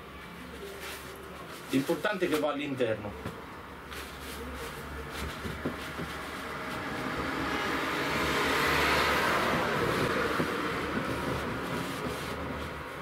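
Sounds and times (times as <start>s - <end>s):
passing road vehicle: 5.0s - 13.0s.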